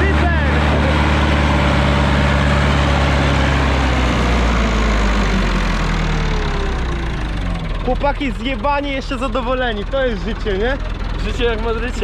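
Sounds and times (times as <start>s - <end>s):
tractor diesel engine passing: 0.0s - 12.0s.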